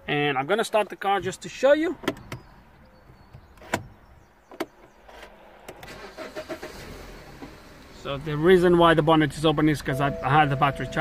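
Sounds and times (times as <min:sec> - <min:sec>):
car engine starting and running: 0:05.0 - 0:11.0.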